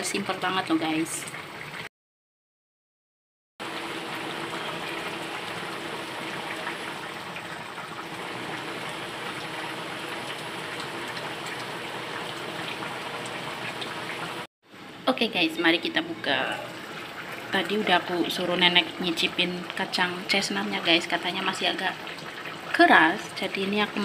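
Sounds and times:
stew bubbling in a pan: 3.6 - 15.0, 15.6 - 24.0.

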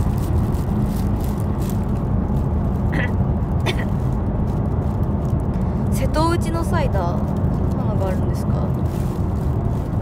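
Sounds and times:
car engine rumble and road noise: 0.0 - 10.0.

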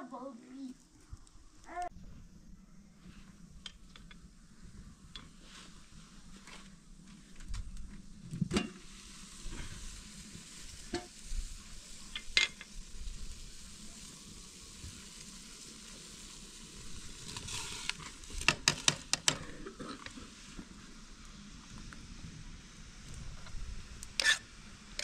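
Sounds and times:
food sizzling in a pan: 8.1 - 25.0
utensil clicking against pan: 18.4 - 19.4.

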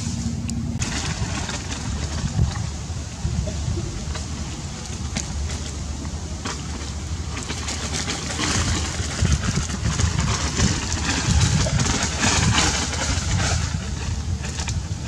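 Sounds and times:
dry thatch rustling and crackling: 0.0 - 15.0.

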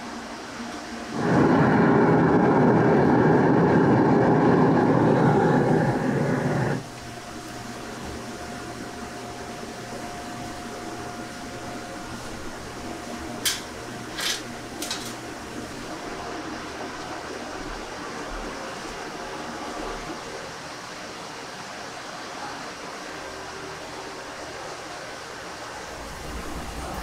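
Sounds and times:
kitchen ventilation rushing: 0.0 - 20.7, 25.7 - 27.0.

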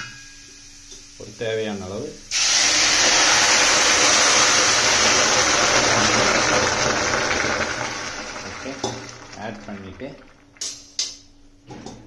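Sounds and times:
water hissing on hot pan: 2.3 - 10.8.

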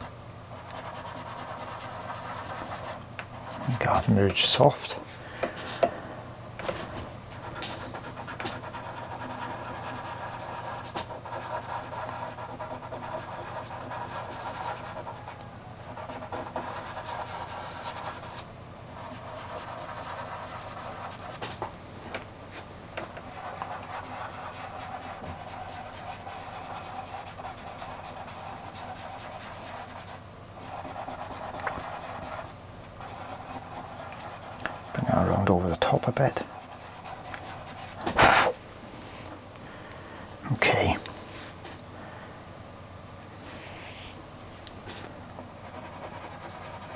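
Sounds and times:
fingertips rubbing on paper: 0.6 - 4.1, 7.4 - 18.4, 19.0 - 21.5, 23.2 - 38.5, 45.6 - 46.9.

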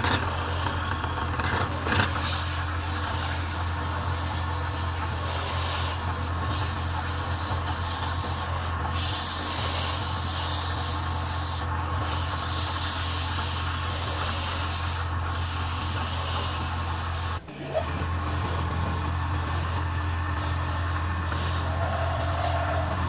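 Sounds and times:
lathe motor hum: 0.0 - 23.0
sandpaper rasping on spinning wood: 1.9 - 17.4.

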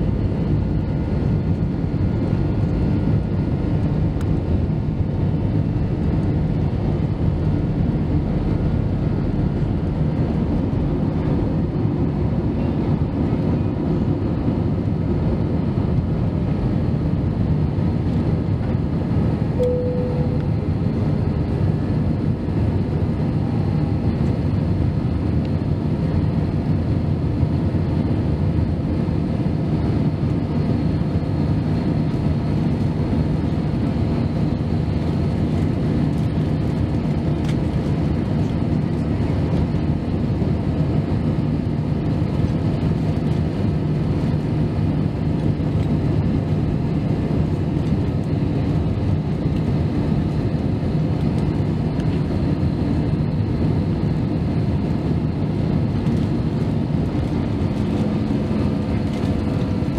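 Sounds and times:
airliner cabin engine rumble: 0.0 - 59.9
faint steady hum: 19.5 - 21.6.

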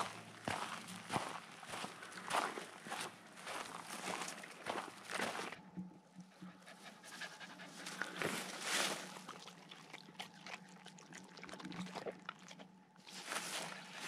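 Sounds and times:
dog panting: 6.2 - 9.2.

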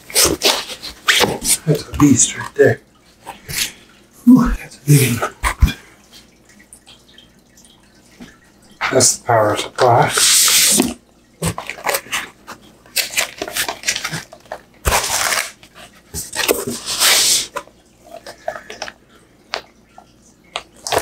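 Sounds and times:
plastic wrap rustling: 0.0 - 2.4, 10.7 - 17.6.

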